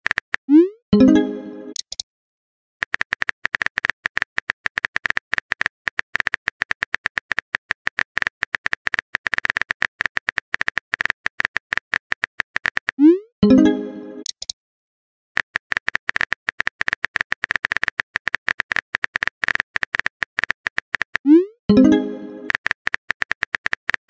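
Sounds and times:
phone keyboard typing clicks: 2.8 - 13.0, 15.4 - 24.0.

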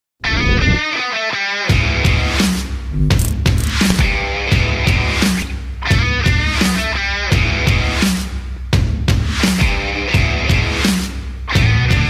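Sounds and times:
rock music: 0.3 - 12.0.

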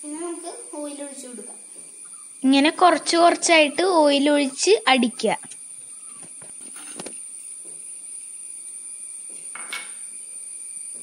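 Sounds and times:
faint high whine: 0.0 - 11.0
short scrape on counter: 6.6 - 7.2.

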